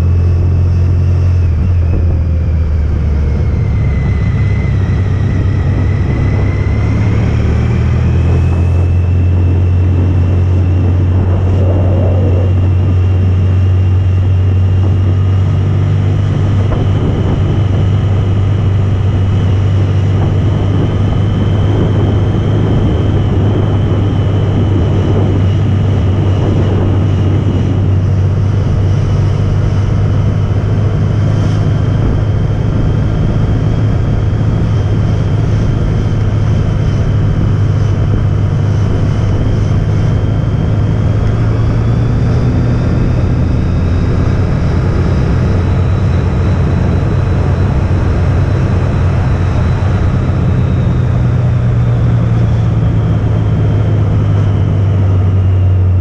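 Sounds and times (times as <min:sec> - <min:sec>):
motorcycle engine cruising: 0:00.0 - 0:56.0
wind and road noise: 0:00.0 - 0:56.0.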